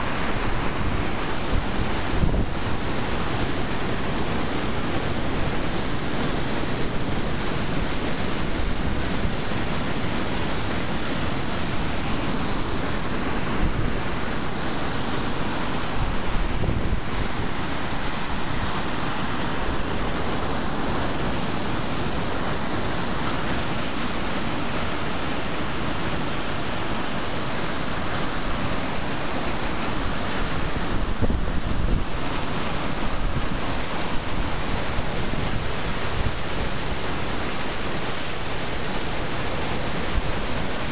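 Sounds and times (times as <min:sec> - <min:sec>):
wind buffeting microphone: 0:00.0 - 0:06.0, 0:15.8 - 0:20.7, 0:30.0 - 0:38.0
floodwater rushing: 0:00.0 - 0:40.9.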